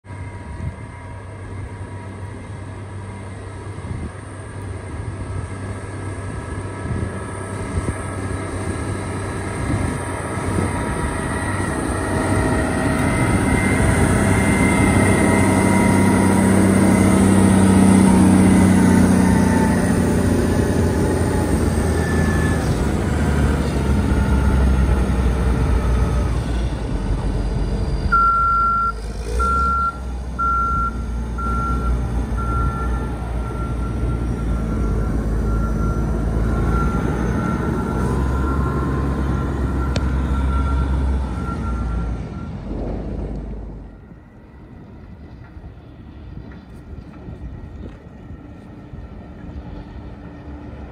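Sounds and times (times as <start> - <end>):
motor grader diesel engine: 0.0 - 50.9
back-up alarm beeping: 28.1 - 42.6.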